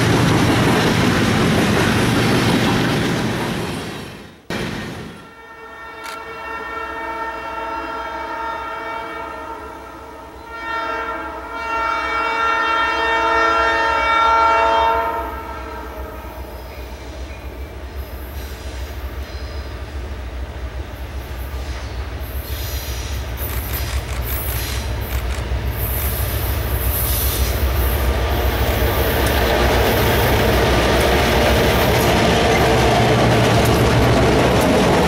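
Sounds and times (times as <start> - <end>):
train air horn blasts: 5.1 - 16.7
locomotive rumble: 16.3 - 35.0.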